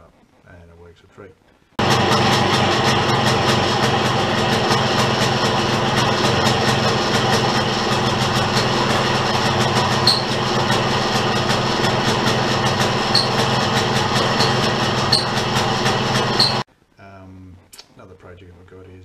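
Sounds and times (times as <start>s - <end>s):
lawnmower engine running: 1.8s - 16.7s.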